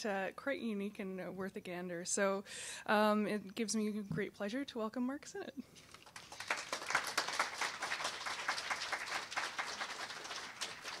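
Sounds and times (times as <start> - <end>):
audience applauding: 5.9 - 11.0.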